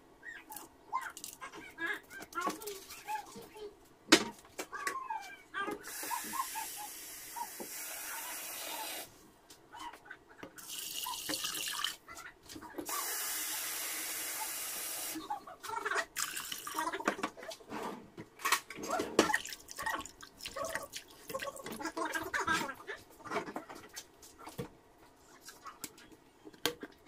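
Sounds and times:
water pouring into a metal pot: 10.6s - 12.0s, 16.2s - 16.8s.

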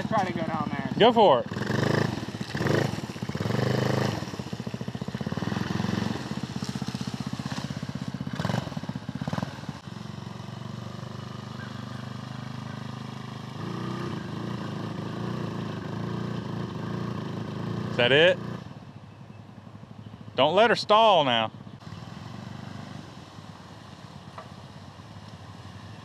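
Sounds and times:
small go-kart engine running: 0.0s - 19.9s.

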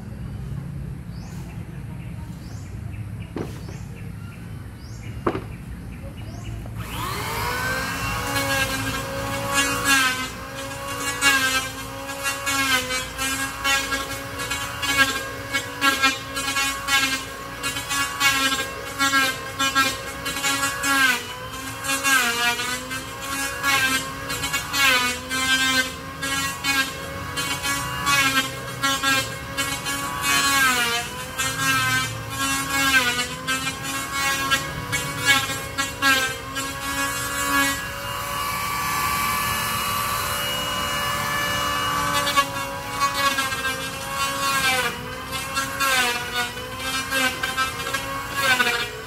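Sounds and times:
power tool motor whine: 6.6s - 49.0s.

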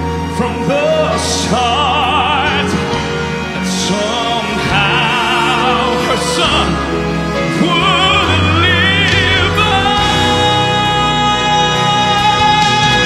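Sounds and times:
band drums and bass: 0.0s - 13.0s
man singing with vibrato: 0.0s - 13.0s.

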